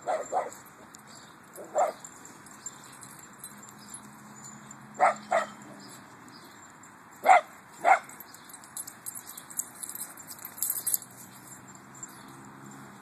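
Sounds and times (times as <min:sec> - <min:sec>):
dog barking: 0:00.0 - 0:00.6, 0:01.6 - 0:02.0, 0:05.0 - 0:05.6, 0:07.2 - 0:08.1
light clicks and rattles: 0:08.1 - 0:12.9.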